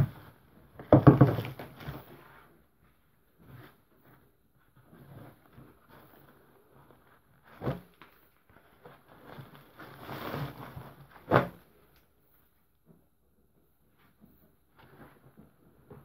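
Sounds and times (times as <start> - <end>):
knocks on plastic bin: 0.9 - 1.6
rustling of jeans and plastic bags: 8.3 - 11.9.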